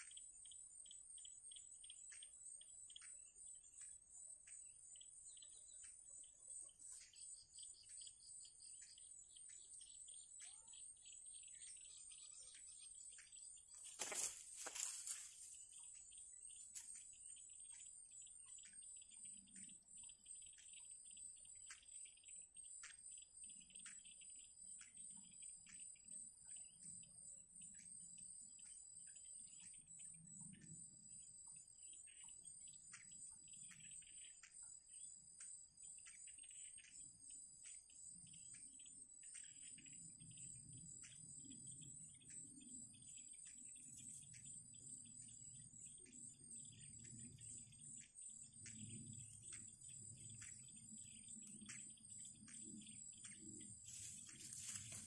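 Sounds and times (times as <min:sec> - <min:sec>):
birds chirping: 0:00.0 - 0:22.3, 0:42.3 - 0:55.0
insects droning: 0:00.0 - 0:55.0.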